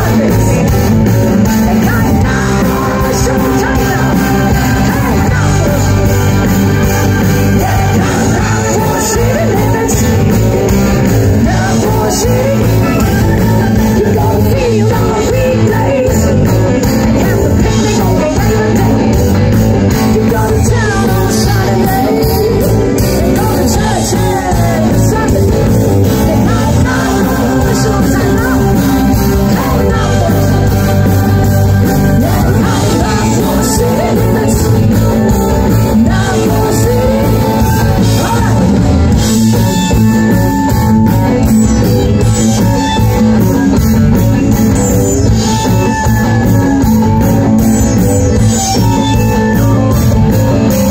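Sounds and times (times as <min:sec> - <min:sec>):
live rock band playing: 0:00.0 - 0:50.9
person singing: 0:00.0 - 0:50.9.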